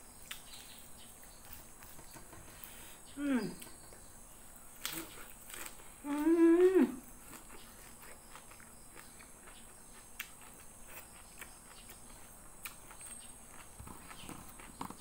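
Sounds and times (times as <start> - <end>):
woman humming mmm: 3.1 - 3.8, 6.0 - 7.1
chewing and mouth sounds: 7.2 - 15.0.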